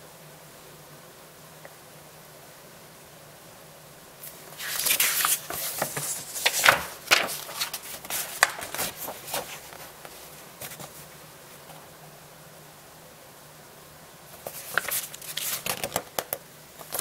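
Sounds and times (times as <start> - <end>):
sharp paper crackles: 4.2 - 11.1, 14.4 - 17.0
paper rustling and crinkling: 4.2 - 11.8, 14.3 - 17.0.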